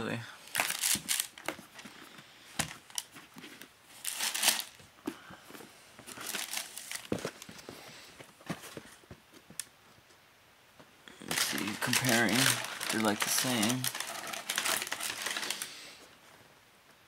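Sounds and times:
tissue paper crinkling: 0:00.5 - 0:01.4, 0:02.7 - 0:04.8, 0:06.1 - 0:07.5, 0:11.2 - 0:15.9.

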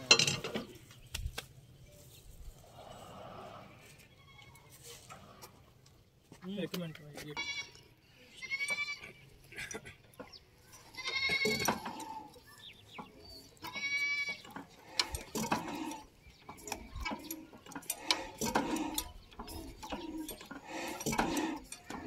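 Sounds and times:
goat bleating: 0:07.4 - 0:09.3, 0:10.8 - 0:12.3, 0:13.6 - 0:14.4
sharp clicks and knocks: 0:09.6 - 0:22.0.

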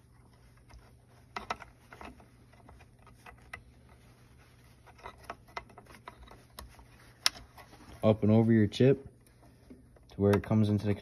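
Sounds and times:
light rubbing: 0:00.0 - 0:08.5.

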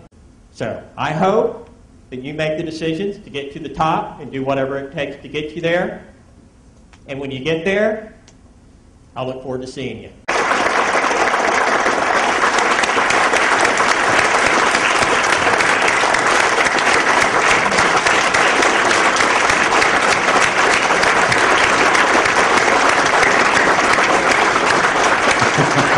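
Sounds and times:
audience applauding: 0:10.3 - 0:25.9.

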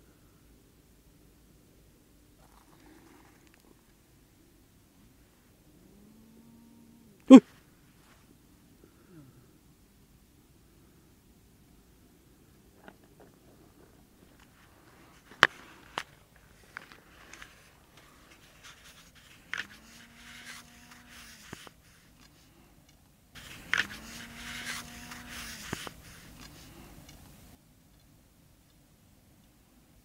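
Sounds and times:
rustling in dry brush: 0:12.8 - 0:22.6, 0:23.4 - 0:27.6.

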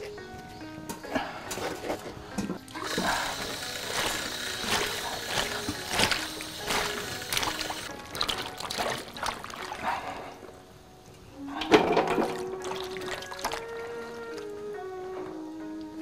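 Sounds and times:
background music with held notes: 0:00.0 - 0:16.0
hands stirring peppers in water: 0:02.6 - 0:10.3, 0:12.1 - 0:13.8
water trickling from a hose: 0:02.7 - 0:10.3, 0:12.5 - 0:13.7
water splashing: 0:02.7 - 0:10.4, 0:12.2 - 0:13.7.

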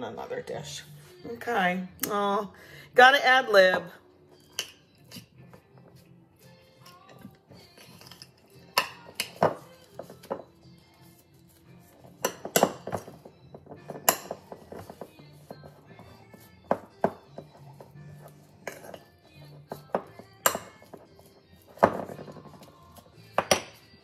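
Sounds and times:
faint music: 0:00.0 - 0:24.0
spoon clinking on dishes: 0:04.4 - 0:05.3.

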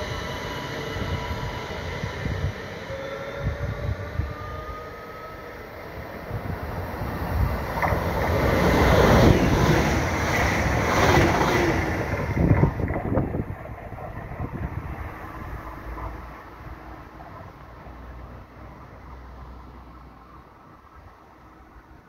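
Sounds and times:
electric train drive whining: 0:00.0 - 0:17.2
train rushing noise: 0:00.0 - 0:22.0.

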